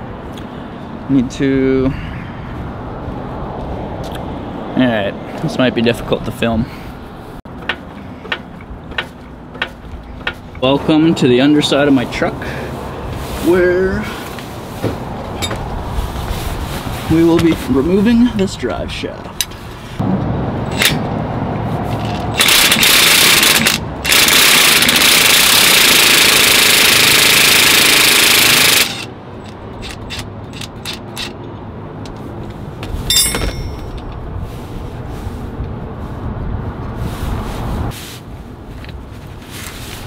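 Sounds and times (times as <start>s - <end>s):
impact wrench hammering: 7.6s - 10.9s, 22.3s - 29.1s, 33.1s - 34.0s
hand tools knocking on metal: 7.6s - 11.3s, 15.4s - 15.7s, 33.1s - 34.1s.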